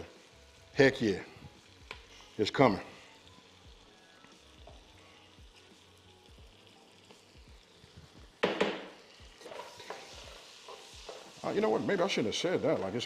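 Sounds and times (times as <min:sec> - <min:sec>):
onion sizzling in a pot: 0:00.0 - 0:13.0
loud clatter of knocks: 0:08.4 - 0:08.9.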